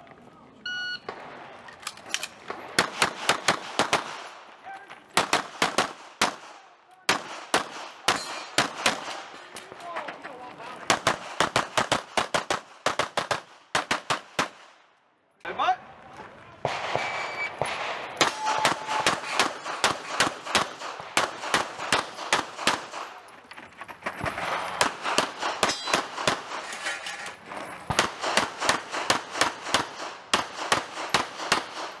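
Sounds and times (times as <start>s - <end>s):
shot timer start beep: 0.7s - 1.1s
rapid pistol shots: 2.4s - 4.4s, 5.2s - 9.3s, 10.9s - 14.7s, 16.6s - 23.2s, 24.4s - 26.6s, 27.9s - 32.0s.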